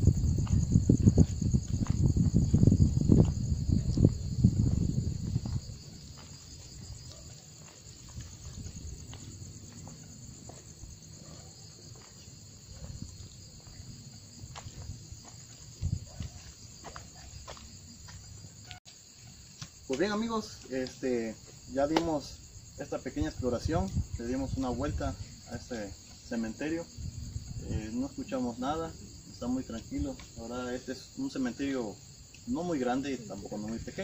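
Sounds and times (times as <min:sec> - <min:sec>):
low rumble on microphone: 0:00.0 - 0:07.3, 0:22.4 - 0:25.6, 0:26.8 - 0:28.1
crickets chirping: 0:00.0 - 0:34.0.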